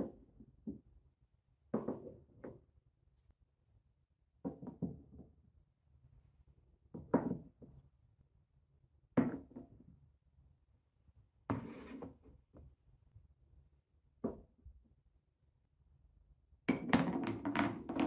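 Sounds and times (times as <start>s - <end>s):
wooden block scraping: 11.5s - 12.2s.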